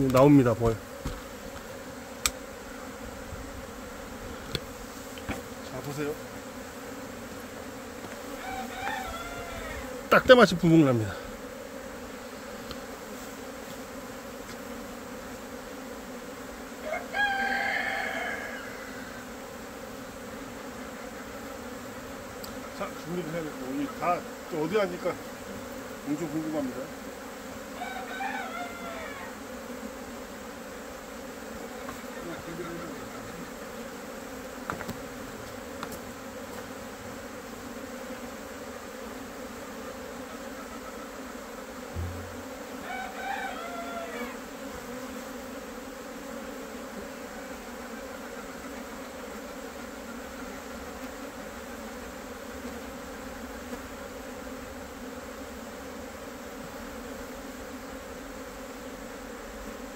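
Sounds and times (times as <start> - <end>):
honeybees swarming buzzing: 0.0 - 59.9
bird calling: 8.3 - 9.9, 27.8 - 29.3, 42.0 - 44.4.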